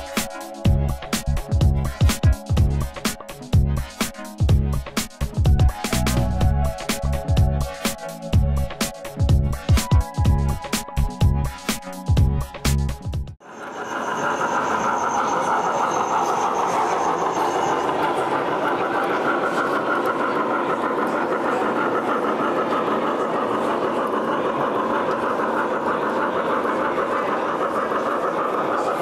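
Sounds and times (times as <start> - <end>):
model steam locomotive running: 13.4 - 29.0.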